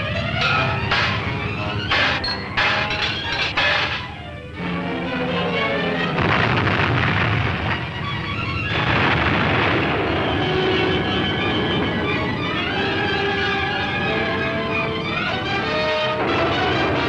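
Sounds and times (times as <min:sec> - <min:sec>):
dramatic orchestral score: 0:00.0 - 0:17.0
crashing explosion effects: 0:06.2 - 0:12.4.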